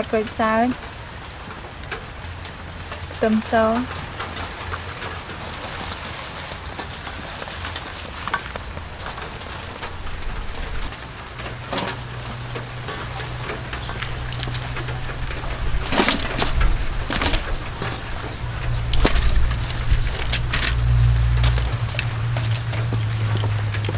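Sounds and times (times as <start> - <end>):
leaves rustling: 1.0 - 23.9
low steady hum: 2.1 - 23.9
foil crinkling: 5.3 - 11.0, 11.6 - 23.6.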